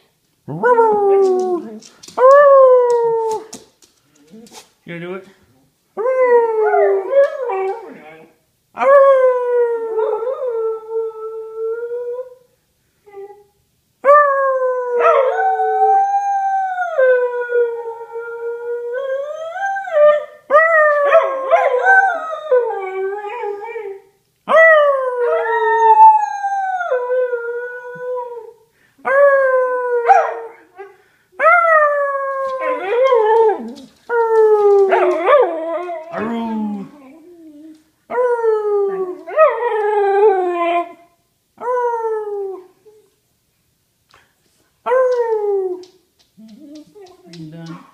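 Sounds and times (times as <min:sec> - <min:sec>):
dog howling: 0:31.4 - 0:41.0.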